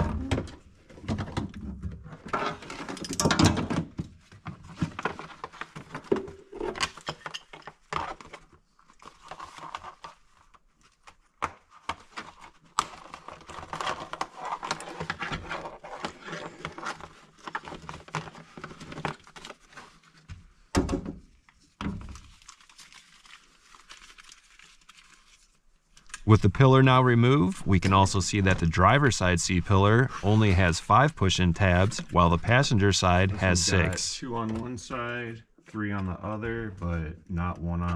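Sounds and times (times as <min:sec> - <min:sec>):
plastic knocking and rustling: 0:00.0 - 0:22.4.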